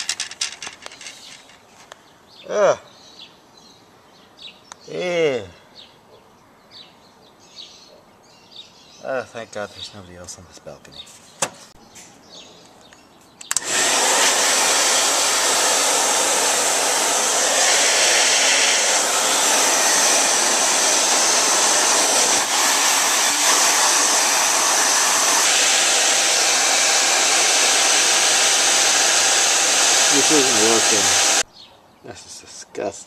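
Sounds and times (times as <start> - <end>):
hair dryer switch click: 13.4 - 13.8
hair dryer blowing: 13.5 - 31.4.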